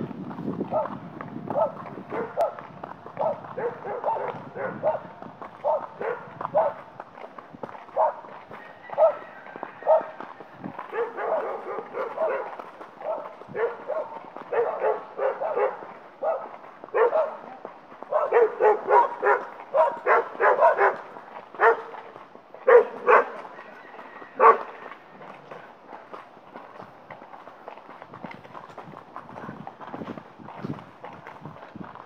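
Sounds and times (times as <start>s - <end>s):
dogs barking: 0.7s - 6.9s, 7.9s - 10.2s, 10.8s - 23.5s, 24.4s - 24.8s.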